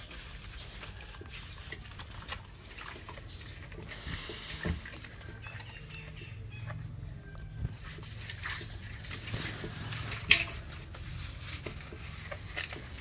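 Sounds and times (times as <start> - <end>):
dog being scrubbed: 0.0 - 4.6, 7.7 - 13.0
water splashing in metal basin: 7.7 - 13.0.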